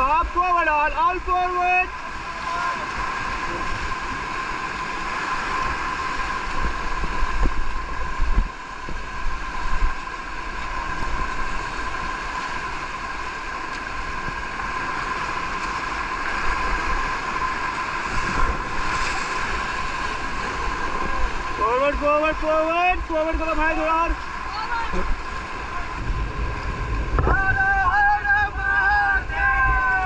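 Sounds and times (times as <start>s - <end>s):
whitewater rapids rushing: 0.0s - 30.0s
wind buffeting microphone: 2.8s - 12.2s, 23.0s - 30.0s.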